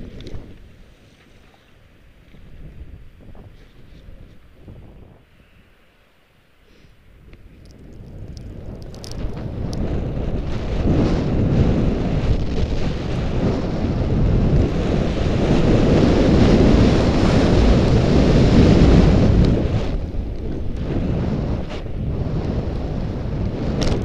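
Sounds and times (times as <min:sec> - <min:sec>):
wind rushing over microphone: 0:00.0 - 0:05.8, 0:07.0 - 0:24.0
skis scraping over snow: 0:07.5 - 0:24.0.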